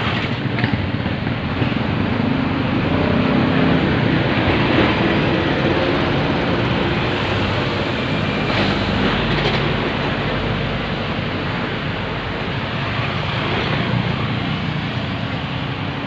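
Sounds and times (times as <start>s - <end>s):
steady rushing noise: 0.0s - 16.0s
vehicle engines running: 0.0s - 16.0s.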